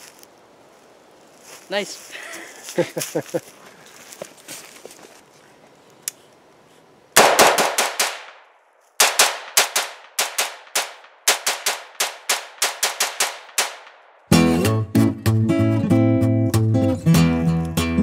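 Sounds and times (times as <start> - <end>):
rifle shots: 7.2 - 14.2.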